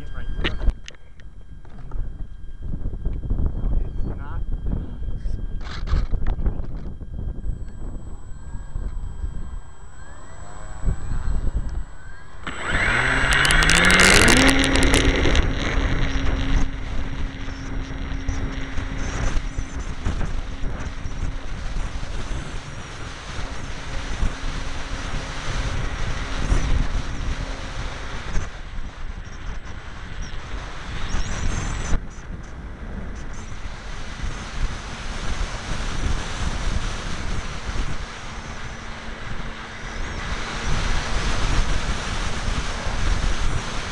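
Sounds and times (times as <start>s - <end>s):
electric model plane motor and propeller: 0.0s - 43.9s
wind rushing over microphone: 0.0s - 43.9s
loud rattle: 11.6s - 20.4s.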